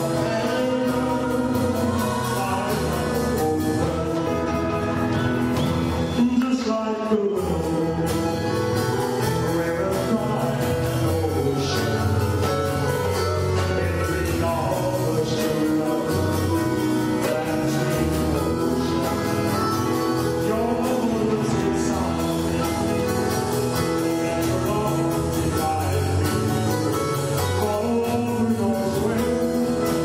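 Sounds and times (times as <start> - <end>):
live band playing: 0.0 - 30.0
person singing: 0.0 - 30.0.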